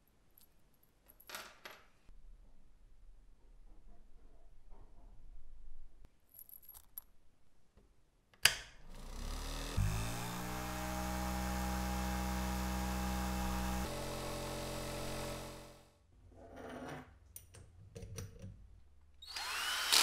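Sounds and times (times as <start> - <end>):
tumbler motor whirring: 8.9 - 15.8, 19.3 - 20.0.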